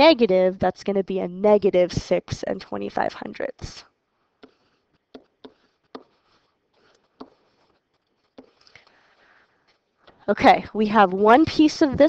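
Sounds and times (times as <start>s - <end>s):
stylus tapping on tablet screen: 4.4s - 9.0s.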